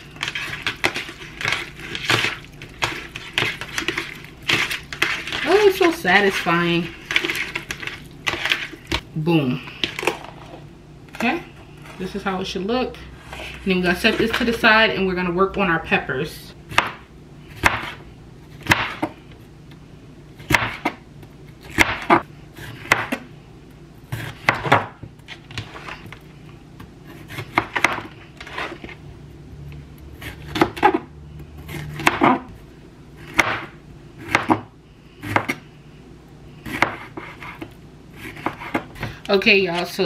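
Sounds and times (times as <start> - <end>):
knife chopping on cutting board: 16.7 - 17.0, 17.6 - 18.0, 18.6 - 19.1, 20.4 - 21.0, 21.7 - 23.2, 24.1 - 25.0, 27.1 - 28.9, 31.7 - 32.5, 33.3 - 35.6, 36.6 - 39.1.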